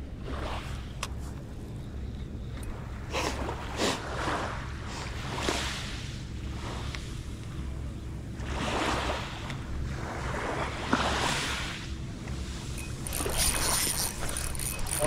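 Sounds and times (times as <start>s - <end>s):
fishing reel clicking: 12.7s - 15.0s.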